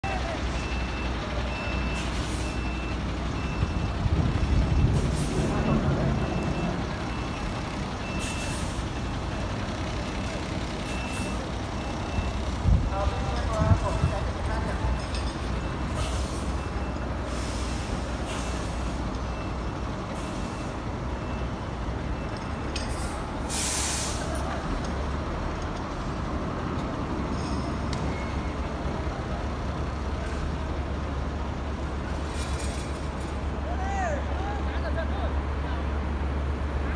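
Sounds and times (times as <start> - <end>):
wind rumbling on microphone: 3.7 - 6.2
electronic warning beep: 13.8 - 15.9.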